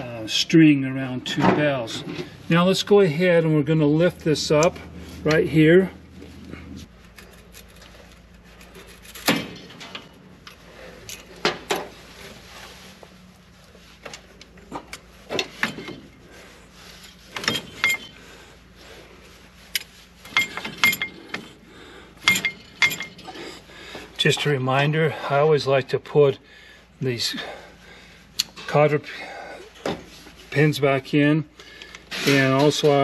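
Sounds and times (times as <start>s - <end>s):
metal parts ringing: 17.4s - 18.2s, 20.3s - 21.4s, 22.2s - 23.4s.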